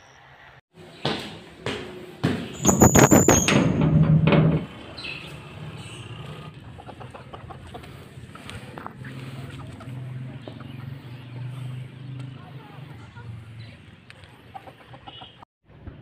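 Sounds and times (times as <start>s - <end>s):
metal door bolt rattling and squealing: 2.5s - 5.2s
chickens clucking softly: 6.1s - 11.4s, 12.9s - 15.4s.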